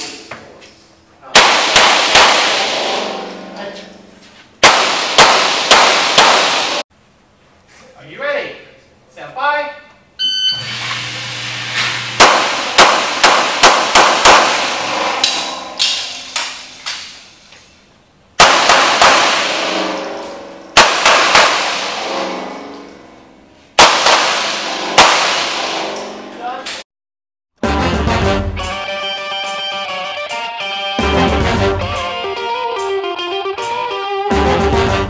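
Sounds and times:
handgun shots echoing indoors: 0:01.3 - 0:03.6, 0:04.6 - 0:06.8, 0:12.2 - 0:17.3, 0:18.4 - 0:23.1, 0:23.8 - 0:26.8.

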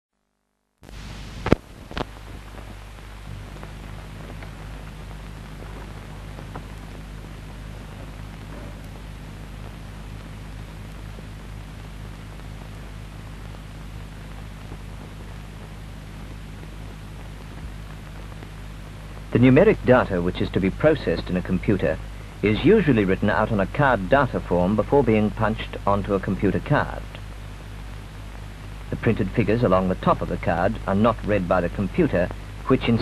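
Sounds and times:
low mains hum: 0:00.3 - 0:33.0
film soundtrack hiss: 0:00.8 - 0:33.0.

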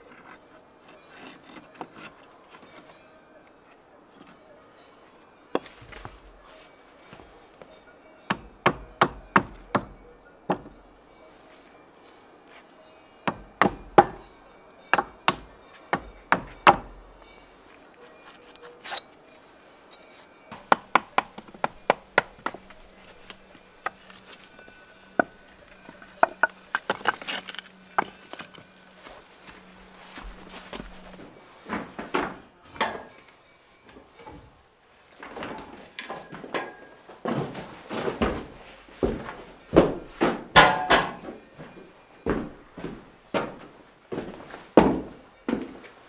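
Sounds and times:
hammer knocking wood and stone: 0:08.3 - 0:10.8, 0:13.2 - 0:14.3, 0:14.9 - 0:17.0, 0:20.5 - 0:28.7, 0:38.2 - 0:43.6, 0:44.8 - 0:45.7.

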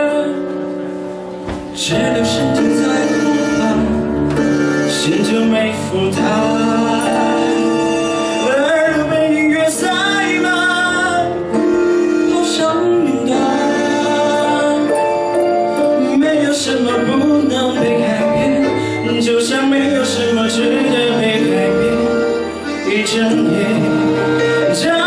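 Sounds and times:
instrumental accompaniment: 0:00.0 - 0:25.0
man singing into a microphone: 0:00.0 - 0:25.0.

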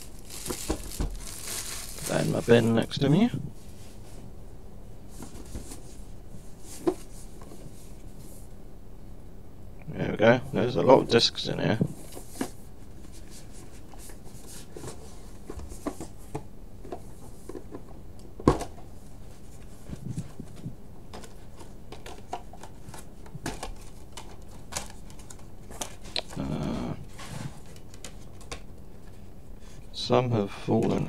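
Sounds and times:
packaging rustling: 0:00.0 - 0:03.2.

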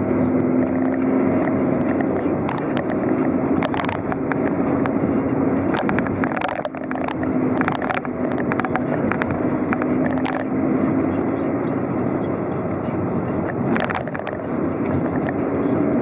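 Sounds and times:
car engine and tyre hum: 0:00.0 - 0:16.0
short clicks and rattles: 0:00.6 - 0:10.5, 0:13.4 - 0:15.4.

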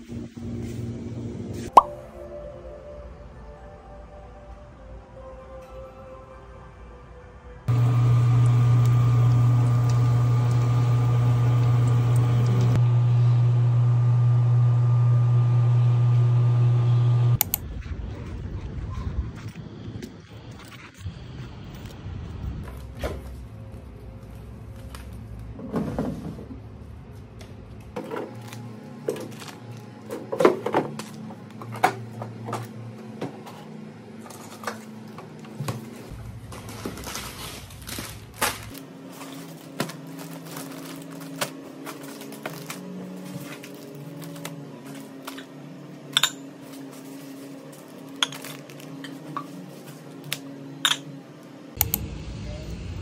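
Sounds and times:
low mechanical hum: 0:00.0 - 0:01.7, 0:07.1 - 0:53.0
plastic bags rustling: 0:28.2 - 0:31.5, 0:34.2 - 0:45.6, 0:46.6 - 0:50.4.

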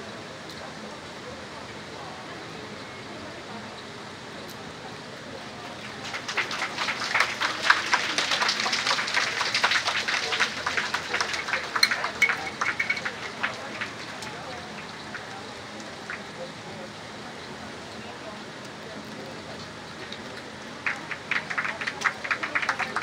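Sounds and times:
crowd clapping: 0:05.5 - 0:16.7, 0:19.9 - 0:23.0.

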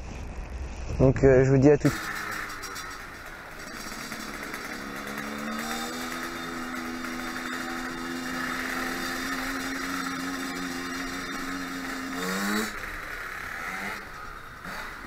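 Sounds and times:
dirt bike engine revving: 0:01.8 - 0:15.0.

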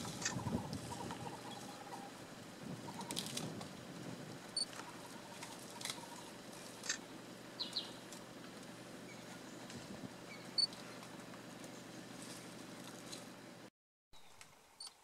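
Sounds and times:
high bird chirps: 0:07.6 - 0:08.0.

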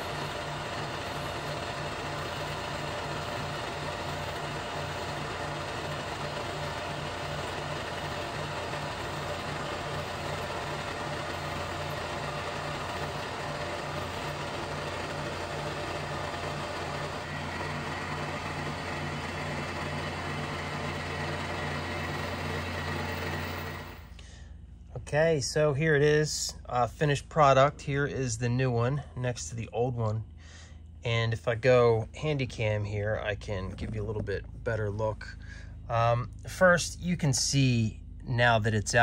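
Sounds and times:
milling machine spindle running: 0:00.0 - 0:24.1.

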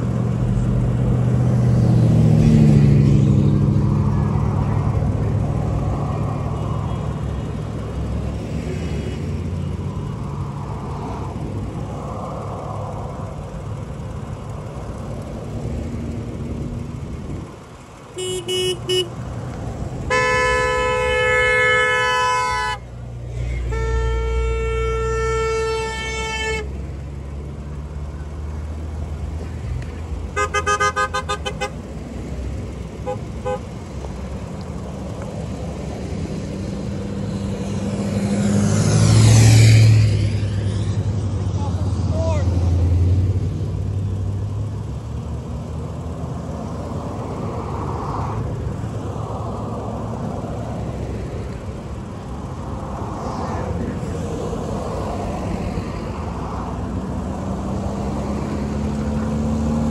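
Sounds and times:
cars driving past: 0:00.0 - 0:59.9
car horns honking: 0:18.1 - 0:19.3, 0:20.0 - 0:27.2, 0:30.2 - 0:32.1, 0:32.8 - 0:34.3.

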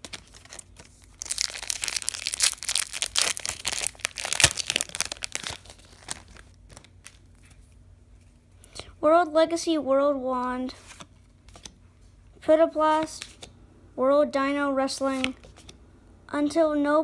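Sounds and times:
cards rustling: 0:00.0 - 0:08.4, 0:10.7 - 0:11.8, 0:15.0 - 0:15.8
foil wrapper crinkling and tearing: 0:00.1 - 0:07.3.

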